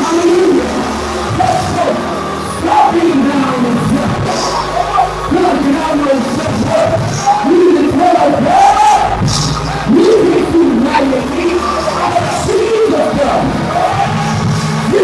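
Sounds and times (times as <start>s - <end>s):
instrumental accompaniment: 0.0s - 15.0s
man singing and shouting: 0.0s - 15.0s.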